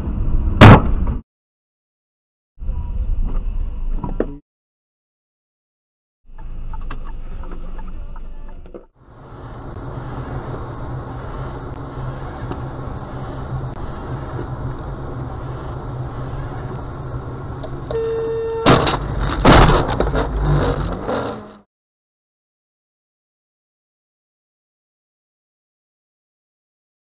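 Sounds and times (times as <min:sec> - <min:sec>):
car road and engine noise: 0:00.0 - 0:01.2, 0:02.6 - 0:04.4, 0:06.3 - 0:21.7
car horn: 0:17.9 - 0:19.0
car crash impacts: 0:18.6 - 0:21.5.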